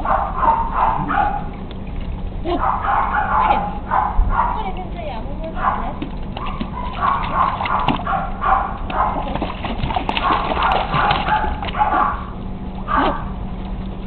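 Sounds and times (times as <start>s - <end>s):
puppies yipping and whining: 5.6s - 9.5s, 10.2s - 12.3s
water splashing: 5.6s - 12.3s.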